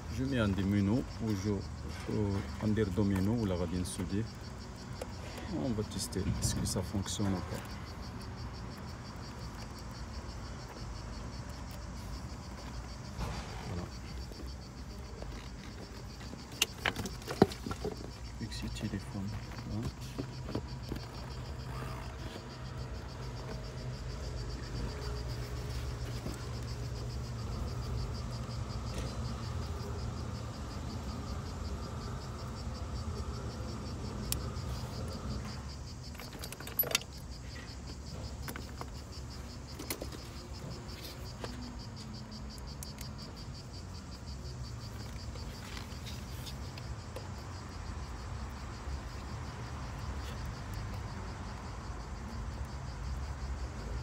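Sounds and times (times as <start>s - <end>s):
insects chirring: 0.0s - 54.0s
small clicks and knocks: 34.3s - 39.0s.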